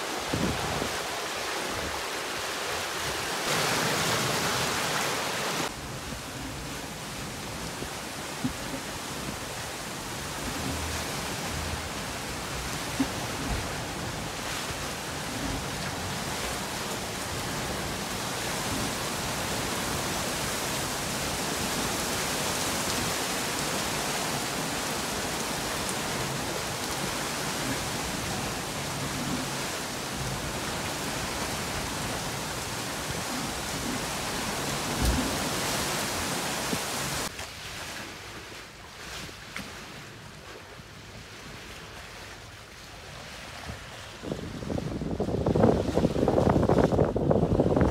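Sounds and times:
driving rain and wind: 0.0 - 37.4, 40.1 - 47.9
water rushing past hull: 0.0 - 47.9.

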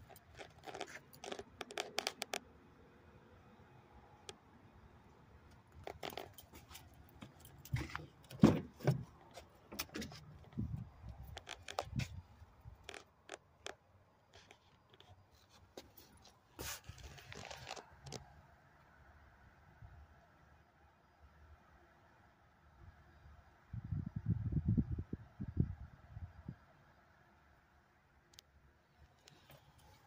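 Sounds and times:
scraping rustle: 14.4 - 18.2.

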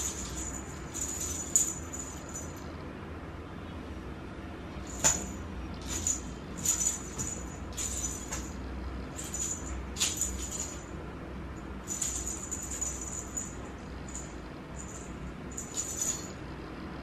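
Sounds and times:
small bell jingling: 0.0 - 2.8, 4.8 - 11.0, 11.6 - 16.5.

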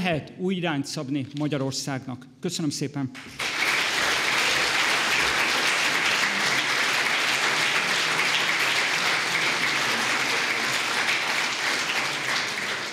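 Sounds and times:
audience applauding: 3.2 - 12.9.

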